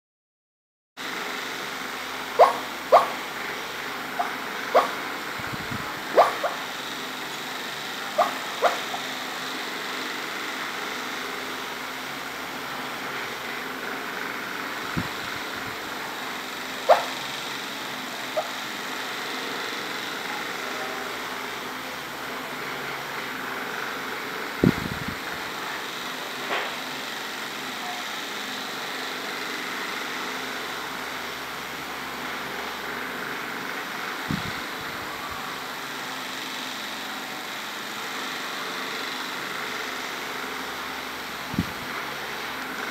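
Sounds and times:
electric fan whirring: 1.0s - 42.9s.

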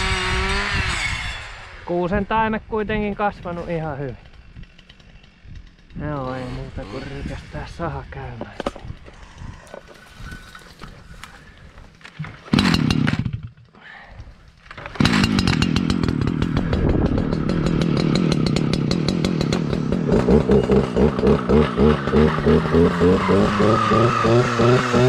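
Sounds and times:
clearing saw engine running: 0.0s - 13.4s, 14.7s - 25.0s.

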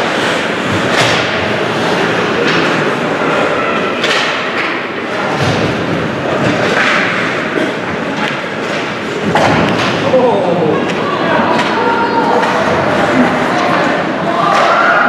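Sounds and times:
skates scraping ice: 0.0s - 10.2s, 10.8s - 15.0s
hockey sticks clacking: 0.0s - 15.0s
puck and bodies hitting boards: 0.0s - 15.0s.

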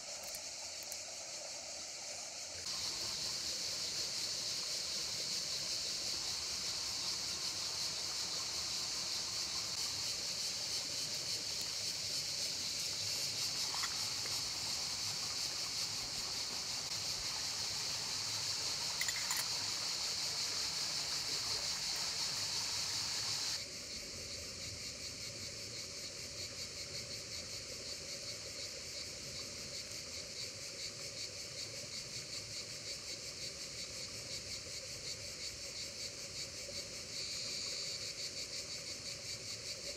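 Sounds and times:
insects chirping: 0.0s - 39.9s
river water running over stones: 6.0s - 23.6s.

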